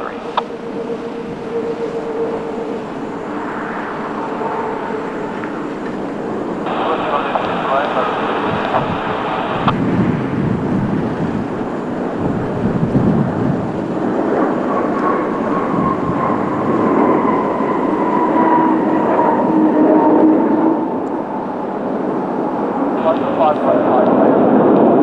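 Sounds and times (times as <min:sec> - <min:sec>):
jet airliner engines passing: 0:00.0 - 0:25.0.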